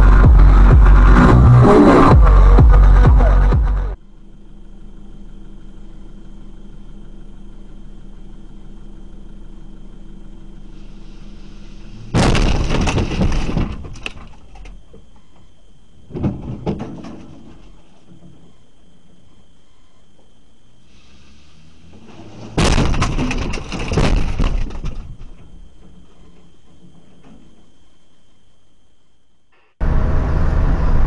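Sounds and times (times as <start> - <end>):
low vehicle hum: 0.0 - 31.0
vehicles colliding with crunch: 6.6 - 28.6
cracking and rattling: 12.1 - 19.2, 21.9 - 27.8
knock and rattle: 12.2 - 15.1, 16.1 - 18.5, 22.6 - 27.7.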